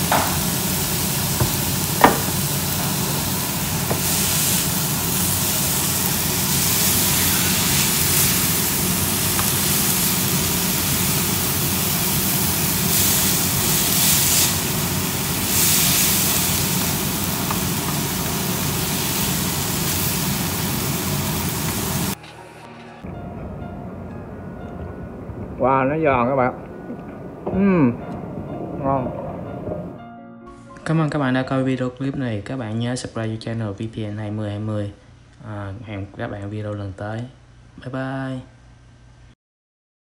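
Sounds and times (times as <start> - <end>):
food sizzling in a pan: 0.0 - 22.2.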